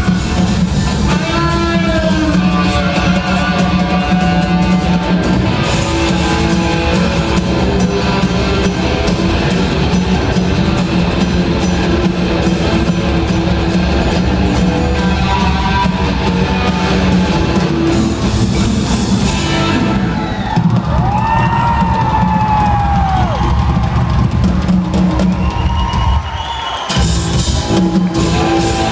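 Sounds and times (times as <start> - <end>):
electric guitars: 0.0 - 25.6, 26.9 - 28.9
bass guitar: 0.0 - 26.2, 27.0 - 28.9
drum kit: 0.0 - 28.9.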